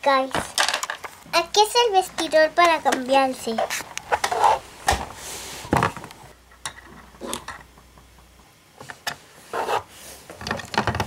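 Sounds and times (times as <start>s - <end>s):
hard plastic rubbing: 2.2s - 6.3s.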